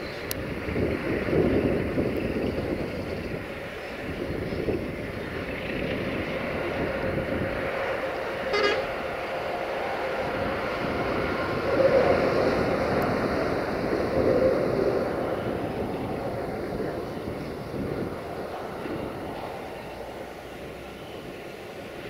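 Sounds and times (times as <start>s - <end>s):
freight train wheels on rails: 0.0s - 22.0s
train horn toot: 8.4s - 9.1s.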